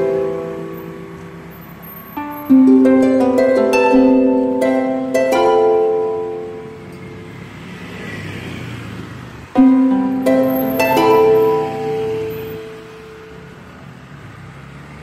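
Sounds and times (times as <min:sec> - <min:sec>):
plucked string melody: 0:00.0 - 0:07.3, 0:09.6 - 0:13.6.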